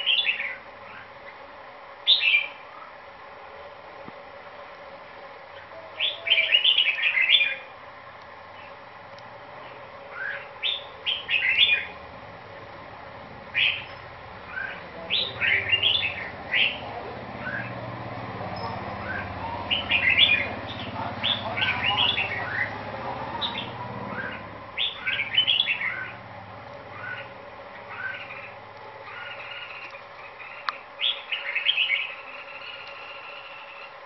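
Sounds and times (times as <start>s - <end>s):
bird chirping song: 0.0s - 1.1s, 2.1s - 2.6s, 5.5s - 7.7s, 9.6s - 12.0s, 13.5s - 34.0s.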